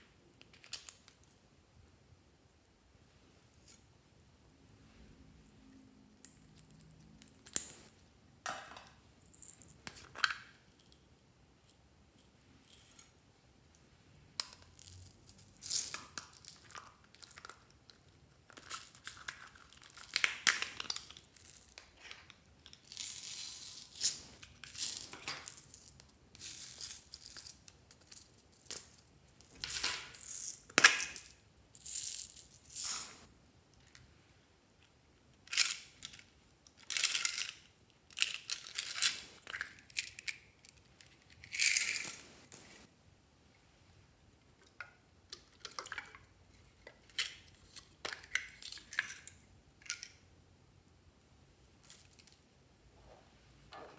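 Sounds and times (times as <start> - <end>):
beads poured into glass dish: 31.8 - 33.2.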